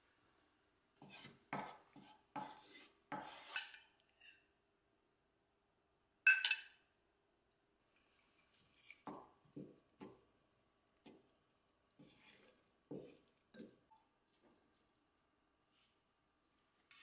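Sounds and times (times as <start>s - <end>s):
wooden spatula scraping pot: 1.0s - 4.5s, 12.0s - 14.0s
metal spoon clinking glass: 6.3s - 6.8s.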